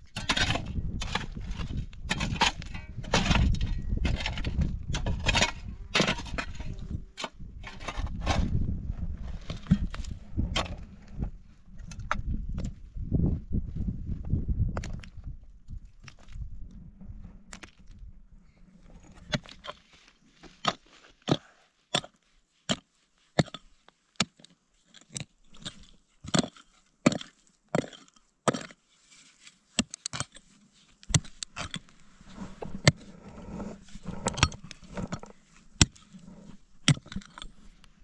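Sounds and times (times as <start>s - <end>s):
hand tool striking wood: 31.1s - 31.8s.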